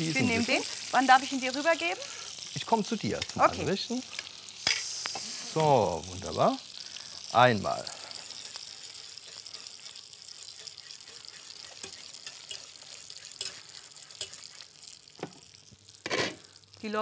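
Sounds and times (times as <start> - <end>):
frying pan sizzling: 0.0 - 17.0.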